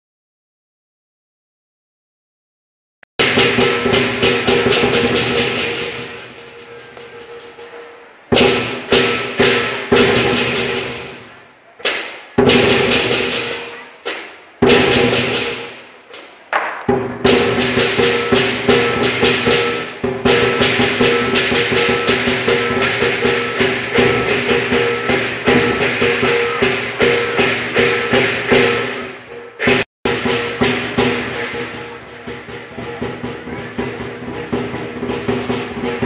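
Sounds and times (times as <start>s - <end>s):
barrel drum beating: 3.2s - 11.2s, 12.4s - 15.8s, 16.5s - 36.0s
hand cymbals clashing: 3.2s - 16.4s, 17.3s - 36.0s.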